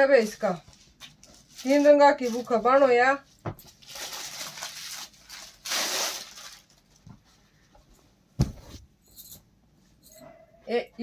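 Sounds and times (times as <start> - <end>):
soft thump: 8.4 - 8.8.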